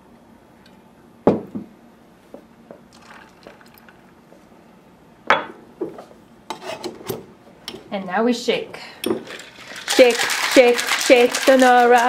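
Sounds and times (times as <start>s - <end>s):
syrup pouring into shaker tin: 3.0s - 3.9s, 9.2s - 12.0s.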